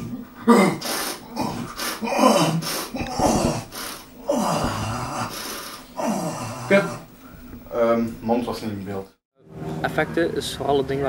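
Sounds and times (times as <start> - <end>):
man growling harshly: 0.0 - 7.1.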